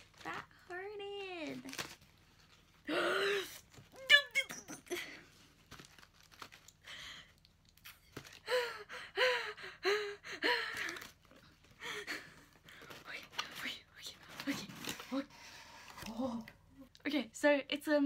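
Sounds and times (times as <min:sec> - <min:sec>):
packing rustling and crinkling: 0:00.0 - 0:02.9, 0:05.2 - 0:08.6, 0:10.7 - 0:11.8.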